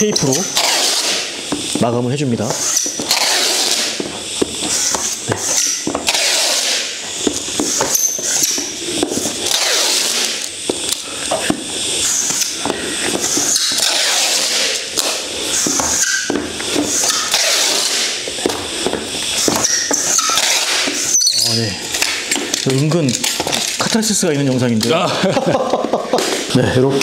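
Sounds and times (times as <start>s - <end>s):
wooden block rasping on foil tape: 12.0s - 25.0s.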